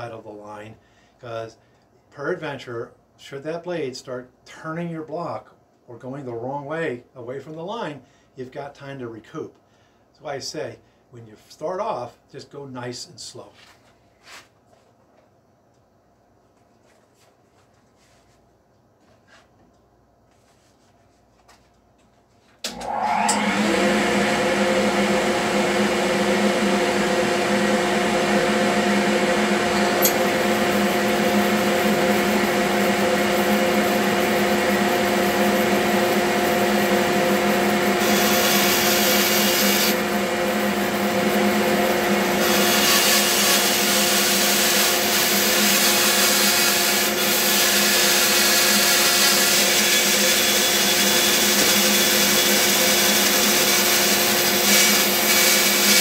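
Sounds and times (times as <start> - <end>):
bandsaw cutting wood: 22.7 - 56.0.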